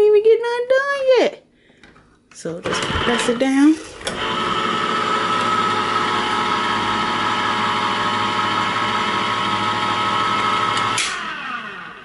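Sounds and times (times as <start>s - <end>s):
electric can opener motor whine: 2.7s - 12.0s.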